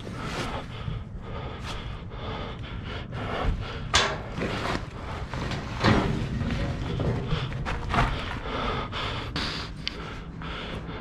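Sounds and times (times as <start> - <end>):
scraping on gritty dirt and metal: 4.0 - 8.3.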